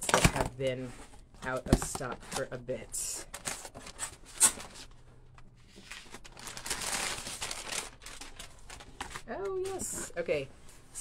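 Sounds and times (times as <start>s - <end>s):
packing paper crumpling: 5.7s - 9.9s.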